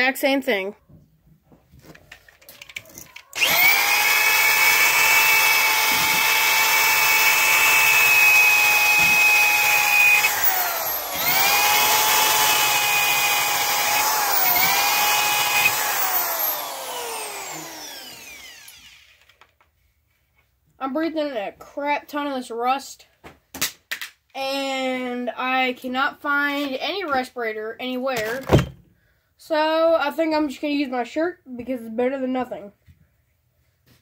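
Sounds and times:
electric drill motor whine: 3.2s - 19.4s.

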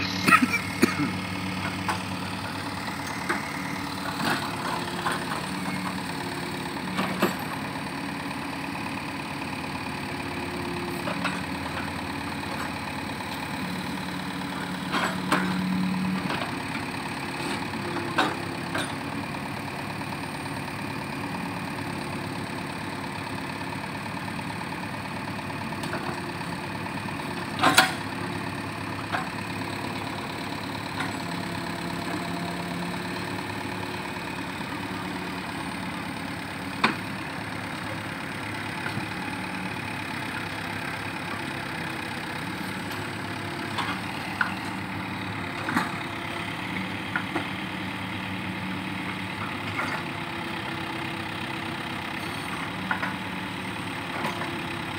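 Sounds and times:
backhoe diesel engine running: 0.0s - 54.9s.

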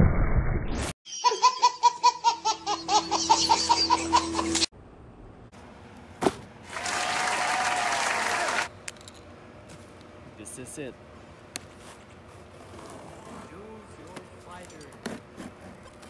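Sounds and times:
baby giggling: 1.1s - 4.7s.

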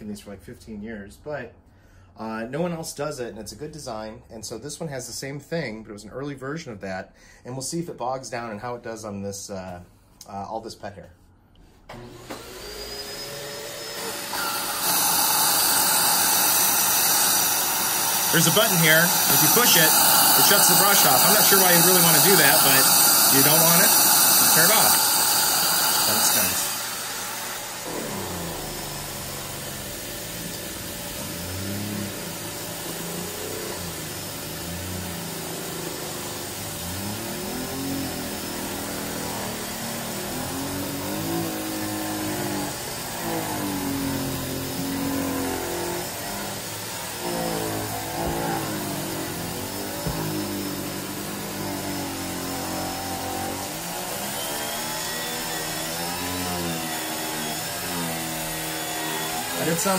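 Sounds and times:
turbine brush hum: 11.9s - 59.9s
vacuum suction rush: 11.9s - 59.9s.

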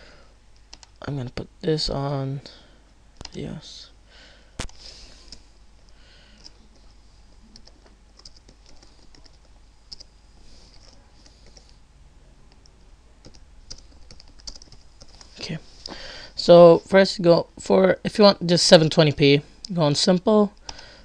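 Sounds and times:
computer keyboard keystrokes: 3.2s - 3.4s, 6.4s - 6.6s, 7.6s - 10.1s, 10.7s - 11.8s, 12.5s - 15.3s.

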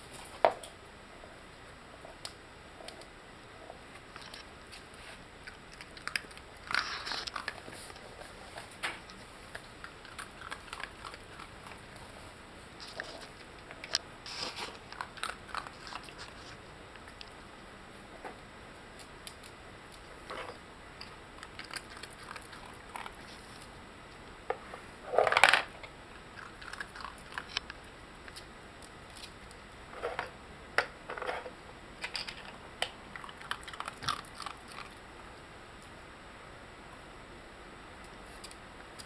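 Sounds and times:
dog chewing treats: 5.4s - 12.2s, 12.8s - 17.4s, 21.0s - 23.7s, 26.4s - 27.8s, 33.1s - 35.0s.

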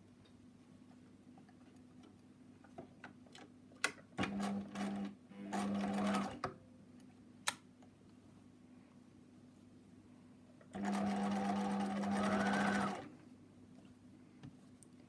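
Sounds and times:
sewing machine stitching: 4.2s - 6.4s, 10.8s - 13.1s.

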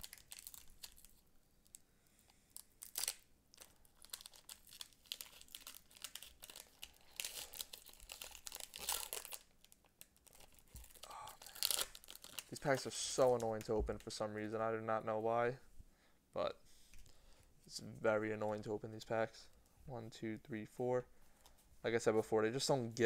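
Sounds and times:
foil wrapper tearing and crinkling: 0.0s - 1.2s, 2.6s - 12.8s.

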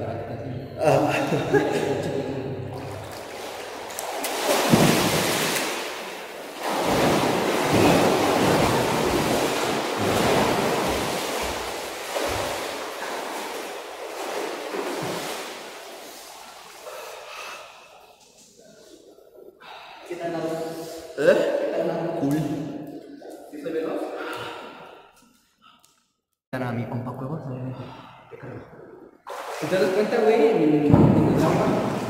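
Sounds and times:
pool water splashing: 1.3s - 19.4s, 28.6s - 32.0s.

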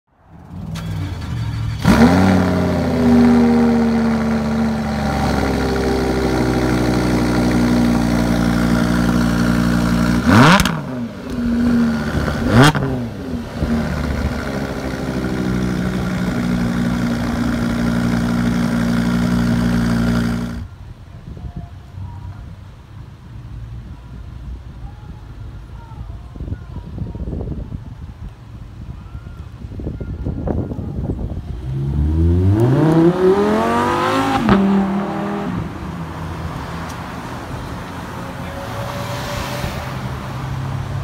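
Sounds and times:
car engine starting and revving: 0.4s - 20.7s, 31.6s - 37.2s.

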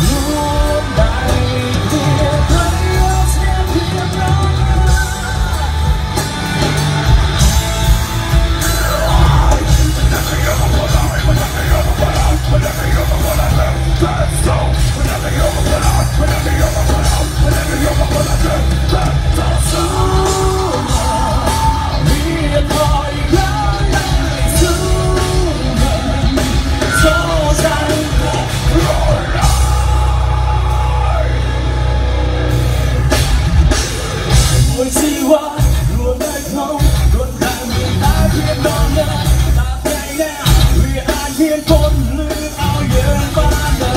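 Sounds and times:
person singing: 0.0s - 6.8s, 8.6s - 31.6s
bass guitar: 0.0s - 43.9s
drums: 0.0s - 43.9s
electric guitars: 0.0s - 43.9s.

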